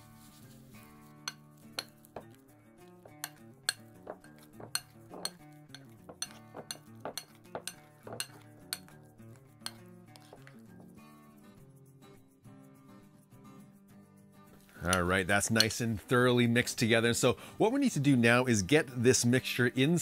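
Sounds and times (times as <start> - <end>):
soft background music: 0.0 - 20.0
spoon clinking against glass bowl: 1.3 - 2.4, 3.0 - 9.0, 9.6 - 10.5.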